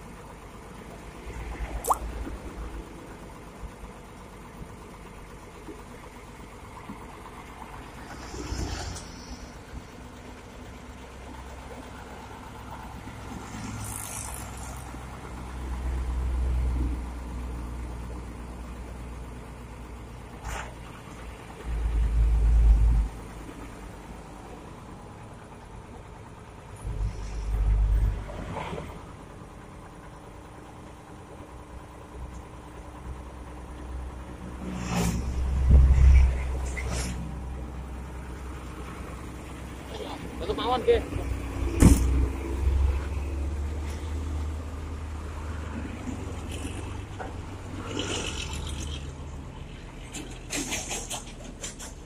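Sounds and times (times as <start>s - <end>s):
passing vehicles rumble: 0.0s - 4.8s, 6.0s - 52.0s.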